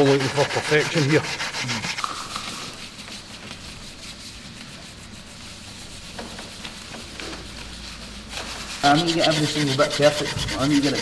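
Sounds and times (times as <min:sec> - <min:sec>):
sandpaper rubbing on metal: 0:00.0 - 0:11.0.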